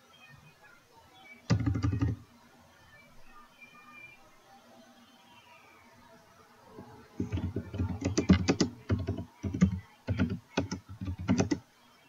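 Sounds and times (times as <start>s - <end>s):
typing on computer keyboard: 1.5s - 2.2s, 7.2s - 11.6s.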